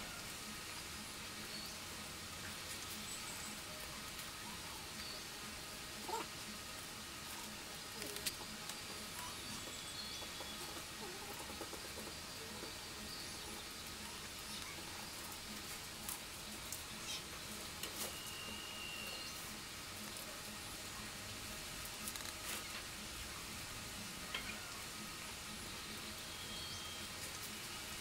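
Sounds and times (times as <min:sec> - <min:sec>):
palm-leaf strips rustling and crackling: 0:00.0 - 0:28.0.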